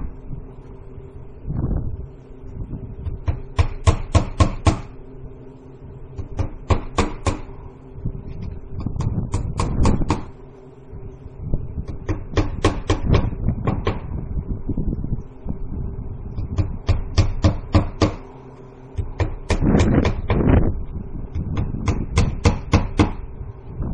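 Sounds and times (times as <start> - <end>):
hammer driving nails: 21.6 - 23.2.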